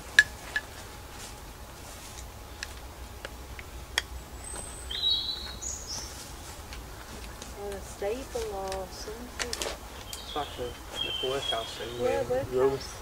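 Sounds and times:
bird chirping: 3.6 - 6.4, 9.9 - 13.0
sharp clicks and snaps: 8.4 - 10.3.

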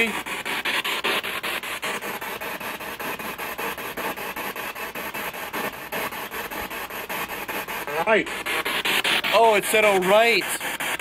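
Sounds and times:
chopped radio static hiss: 0.0 - 0.3, 7.4 - 11.0.

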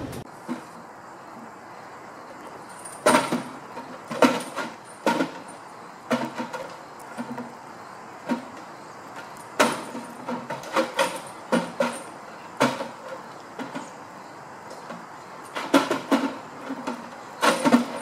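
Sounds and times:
hanging feeder knocking and clunking: 6.1 - 7.6, 8.2 - 14.0, 14.7 - 18.0.

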